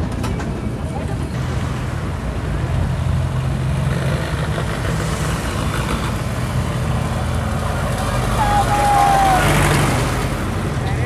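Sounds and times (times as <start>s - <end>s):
tractor engine running: 0.0s - 11.0s
pickup truck engine passing: 1.0s - 11.0s.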